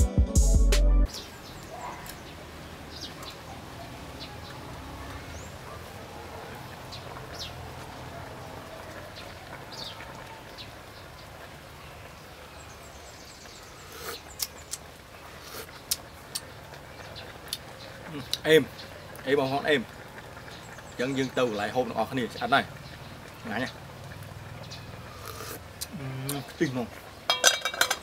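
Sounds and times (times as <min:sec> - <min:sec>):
birds chirping: 0:01.1 - 0:27.3
ladle knocking on metal pot: 0:27.3 - 0:28.0.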